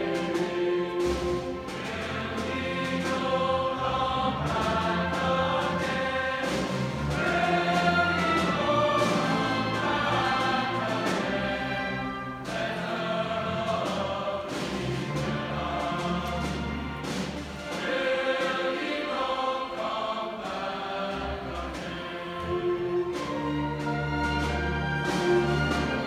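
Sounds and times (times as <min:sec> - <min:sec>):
large choir singing: 0:00.0 - 0:26.0
string orchestra: 0:00.0 - 0:26.0.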